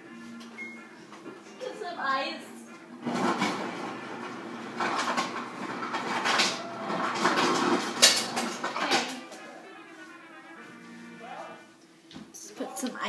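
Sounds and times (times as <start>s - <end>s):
refrigerator door and drawer: 3.0s - 9.2s.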